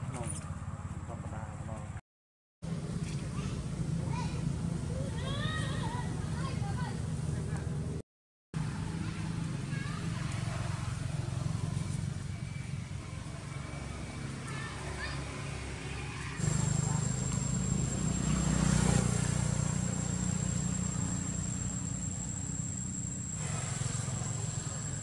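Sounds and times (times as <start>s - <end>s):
vehicle passing: 13.2s - 25.0s
high-pitched insect drone: 16.4s - 25.0s.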